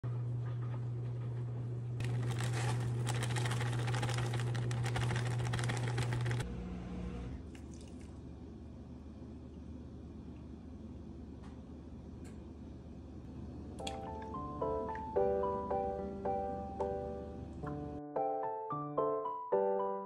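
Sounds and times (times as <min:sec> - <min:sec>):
sugar pattering into bowl: 0:02.0 - 0:06.4
liquid pouring into bowl: 0:07.5 - 0:08.2.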